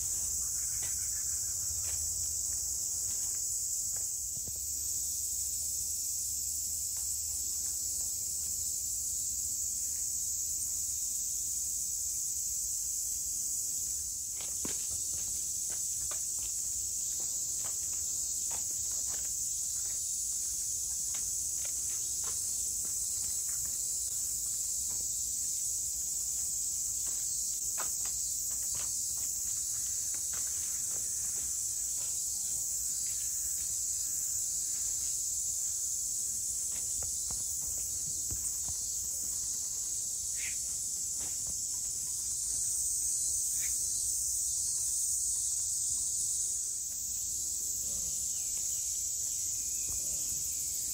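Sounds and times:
insects shrilling: 37.0 - 40.7.

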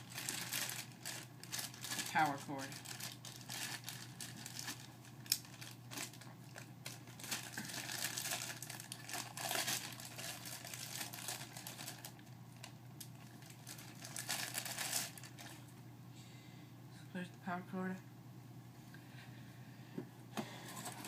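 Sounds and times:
plastic packaging crinkling and tearing: 0.0 - 15.7.

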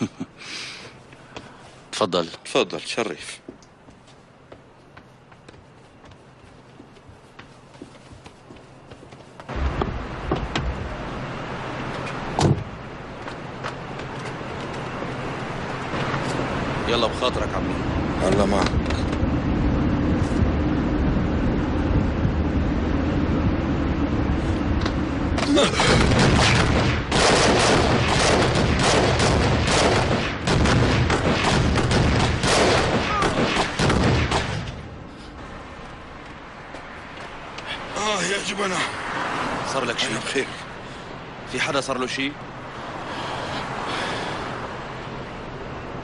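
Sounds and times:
rapid overlapping gunshots: 25.8 - 34.7.

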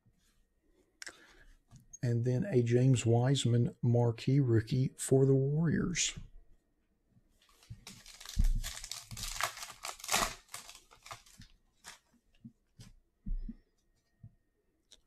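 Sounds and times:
foil wrapper tearing and crinkling: 7.5 - 12.1.

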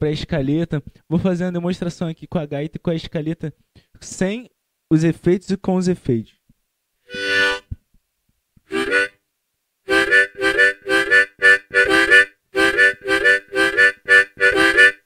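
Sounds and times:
harmonica chords: 7.1 - 7.8, 8.7 - 9.2, 9.9 - 15.0.

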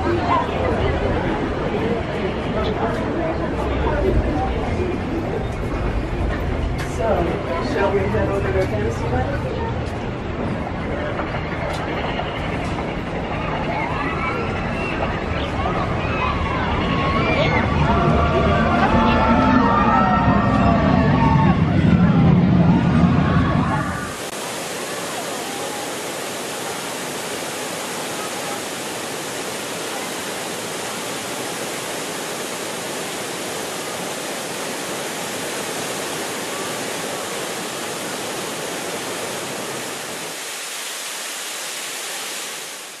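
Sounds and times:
outdoor crowd noise: 0.0 - 34.9
waterfall rushing: 24.0 - 43.0.

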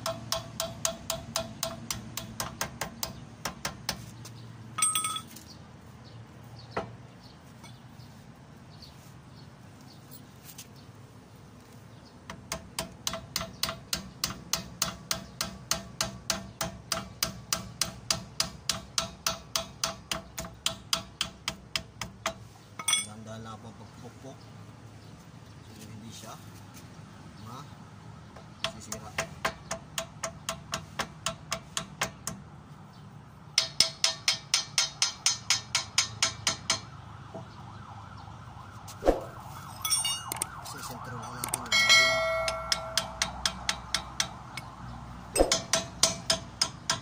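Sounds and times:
hammer tapping on steel: 0.0 - 4.0, 12.3 - 23.1, 33.6 - 36.9, 41.3 - 44.8, 45.4 - 47.0
sharp metallic clink: 4.8 - 5.4, 22.8 - 23.2, 39.7 - 40.6, 41.2 - 44.7, 45.4 - 46.4.

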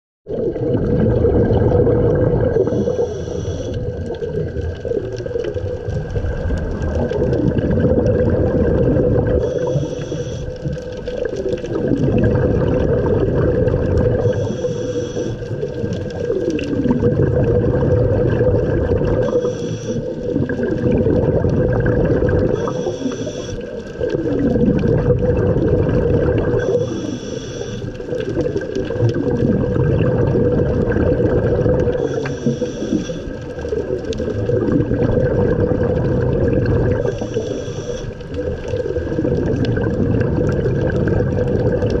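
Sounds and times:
gurgle of exhaled bubbles: 0.3 - 42.0
regulator inhalation hiss: 2.7 - 3.9, 9.4 - 10.5, 14.2 - 15.4, 19.2 - 20.1, 22.6 - 23.6, 26.6 - 28.0, 32.0 - 33.3, 37.0 - 38.2.

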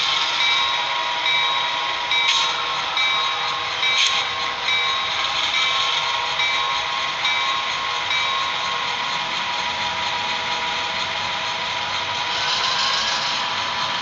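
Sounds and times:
locomotive bell ringing: 0.0 - 12.1
model diesel engine sound: 0.0 - 14.0.

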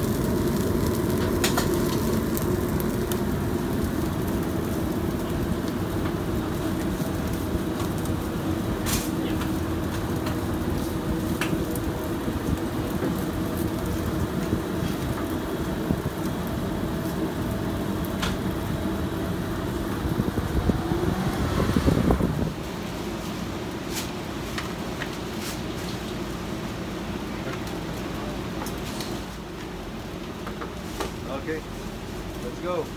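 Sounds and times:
kitchen equipment humming: 0.0 - 23.3.

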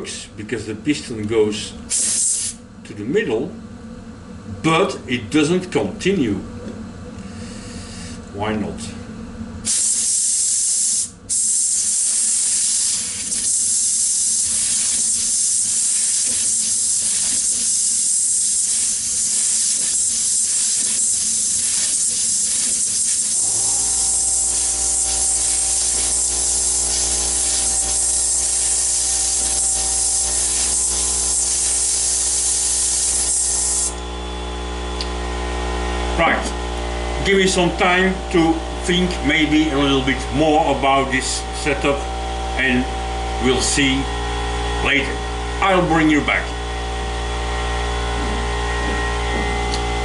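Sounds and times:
compressed air hissing: 1.9 - 2.6, 7.2 - 8.3, 9.6 - 34.1
motor humming: 13.0 - 50.0.

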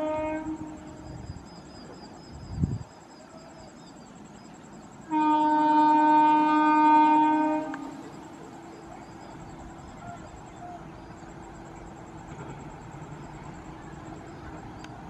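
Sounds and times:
train horn blast: 0.0 - 1.0, 5.1 - 8.0
faint steady tone: 0.0 - 15.0.

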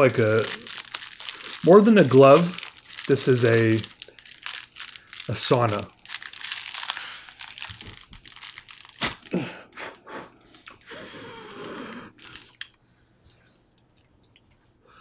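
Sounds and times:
packaging material crinkling: 0.0 - 9.4
person straining vocal sound: 9.0 - 9.8.

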